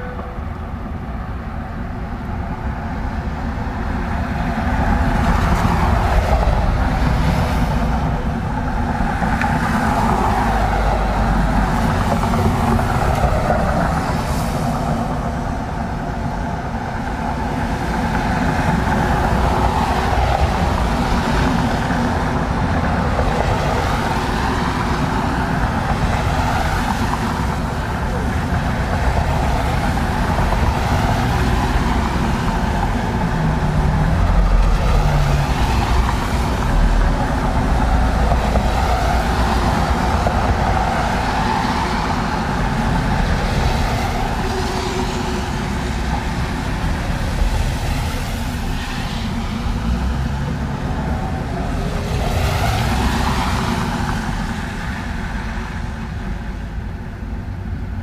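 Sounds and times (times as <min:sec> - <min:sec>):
cars passing on wet road: 0:00.0 - 0:58.0
low rumble of engines: 0:00.0 - 0:58.0.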